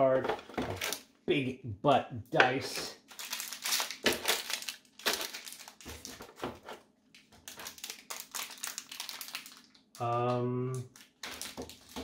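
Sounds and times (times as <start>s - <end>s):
plastic bags crinkling: 3.0s - 6.5s, 7.4s - 10.2s, 10.9s - 12.0s.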